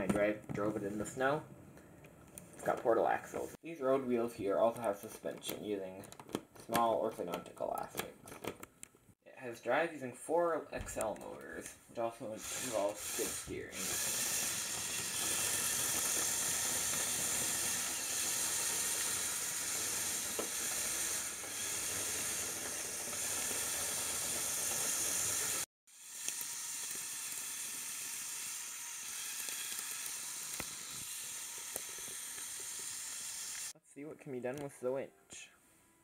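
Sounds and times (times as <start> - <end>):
toy tracked vehicle motors whirring: 12.4 - 33.8.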